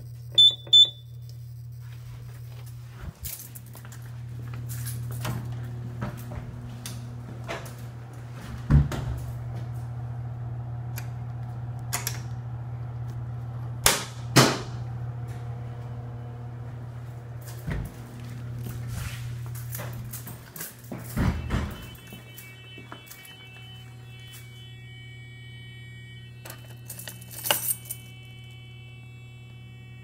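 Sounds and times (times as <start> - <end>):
low electrical hum: 0.0 - 30.0
heavy door thumping shut: 21.1 - 22.0.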